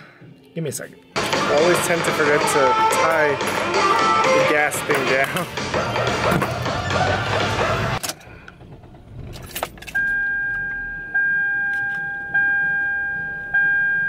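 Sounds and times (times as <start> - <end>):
music from outside: 0.0 - 8.2
dashboard warning chime: 9.9 - 14.0.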